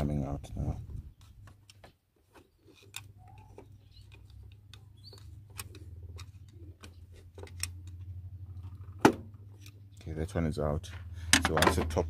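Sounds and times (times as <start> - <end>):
light metallic clicks and knocks: 11.3 - 12.0.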